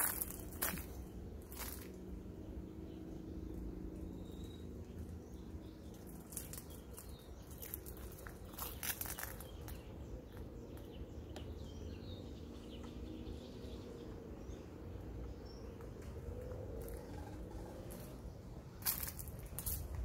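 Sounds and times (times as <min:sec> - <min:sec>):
steady low rumble: 0:00.0 - 0:20.0
faint bird chirps: 0:04.0 - 0:14.0, 0:15.5 - 0:18.4.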